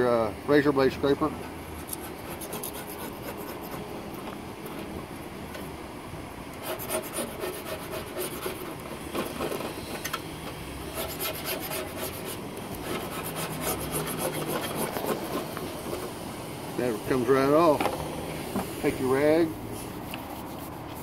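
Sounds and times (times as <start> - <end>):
razor scraper scraping metal: 1.8 - 4.3, 6.6 - 10.0, 10.8 - 16.2.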